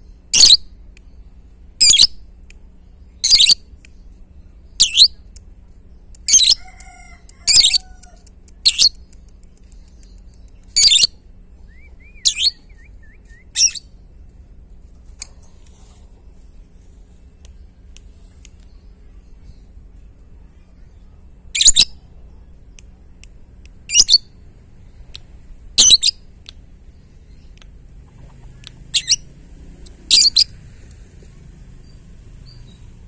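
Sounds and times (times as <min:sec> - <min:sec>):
lovebird shrill chatter: 0:03.2 - 0:03.6, 0:06.3 - 0:09.0, 0:10.7 - 0:11.2, 0:12.1 - 0:12.8, 0:13.5 - 0:13.9, 0:21.5 - 0:22.0, 0:23.9 - 0:24.3, 0:25.8 - 0:26.2, 0:28.9 - 0:29.2, 0:30.1 - 0:30.6.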